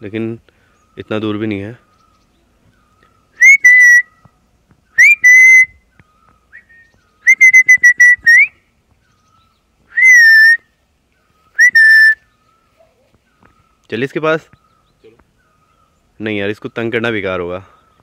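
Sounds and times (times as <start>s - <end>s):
person whistling: 3.4s - 4.0s, 5.0s - 5.8s, 6.6s - 8.5s, 9.9s - 10.6s, 11.6s - 12.2s.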